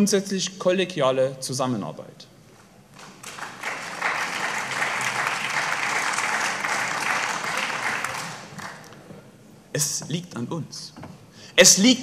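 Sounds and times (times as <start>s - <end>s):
audience applause: 3.0s - 8.9s.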